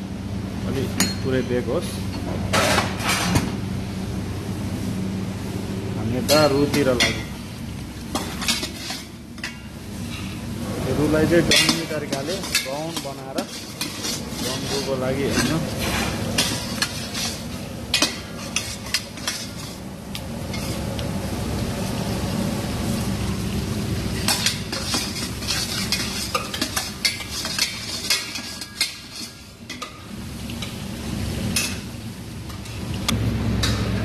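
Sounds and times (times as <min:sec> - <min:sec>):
vegetables sizzling in oil: 0:06.8 - 0:33.0
metal spoon scraping a pot: 0:08.2 - 0:09.1, 0:11.5 - 0:19.8, 0:20.5 - 0:20.8, 0:24.3 - 0:29.9.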